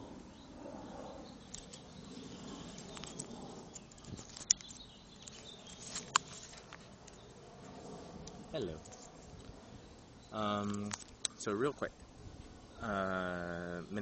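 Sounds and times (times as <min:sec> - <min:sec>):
steady low background noise: 0:00.0 - 0:14.0
camera handling rustling: 0:02.7 - 0:07.2
sharp clicks: 0:02.8 - 0:07.2, 0:10.5 - 0:11.4.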